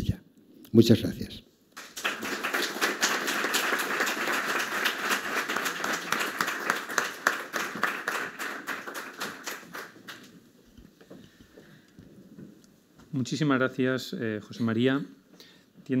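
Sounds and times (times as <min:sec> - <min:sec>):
audience applauding: 0:01.8 - 0:10.3.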